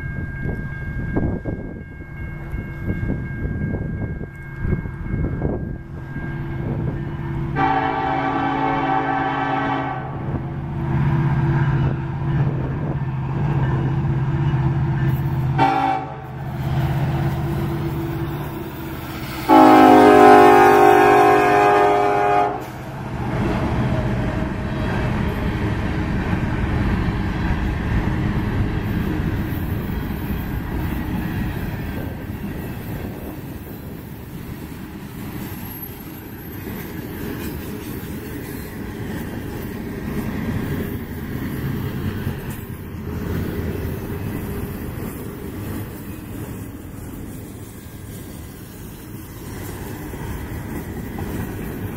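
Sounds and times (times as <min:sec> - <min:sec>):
train cars rolling rumble: 0:00.0 - 0:51.9
locomotive air horn blasts: 0:07.5 - 0:10.5, 0:15.5 - 0:16.5, 0:19.3 - 0:22.9.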